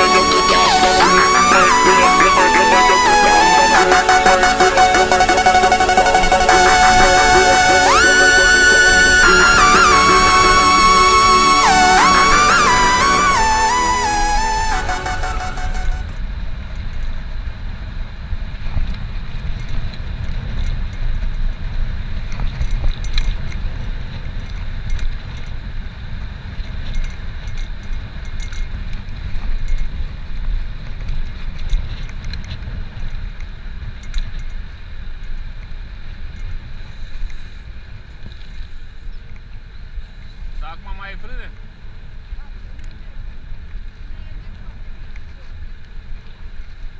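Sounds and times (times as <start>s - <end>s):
wind rumble on microphone: 16.0s - 46.9s.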